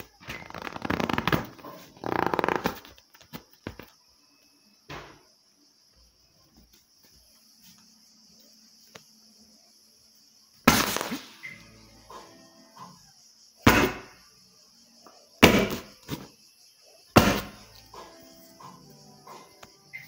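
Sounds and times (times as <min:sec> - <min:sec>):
beach ball being struck: 0:13.7 - 0:14.2, 0:17.2 - 0:17.6.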